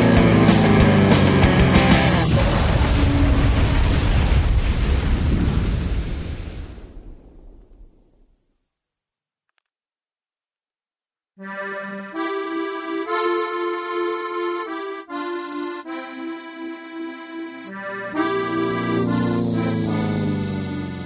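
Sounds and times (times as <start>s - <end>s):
deep bass notes: 0.0s - 4.3s, 15.8s - 21.0s
melody over held chords: 11.5s - 21.0s.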